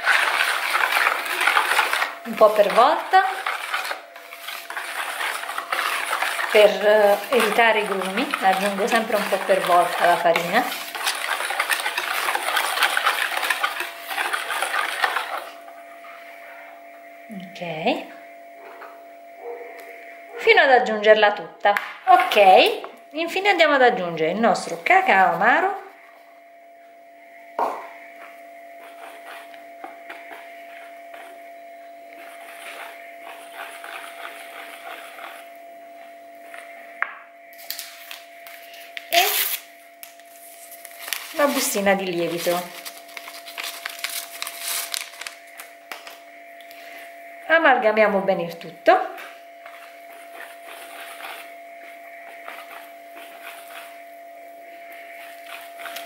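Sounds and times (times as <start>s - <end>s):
whisk scraping batter in bowl: 0.0s - 15.8s, 28.7s - 36.7s, 40.4s - 45.3s, 49.1s - 56.0s
faint steady hum: 0.0s - 56.0s
whisk clicking against bowl: 0.1s - 15.4s.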